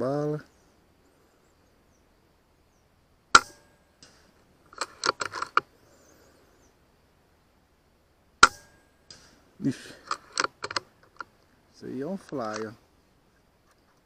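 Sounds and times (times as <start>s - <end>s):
air rifle shot cracking: 3.3s - 4.4s, 8.4s - 10.2s
rifle action clicking: 10.0s - 11.3s.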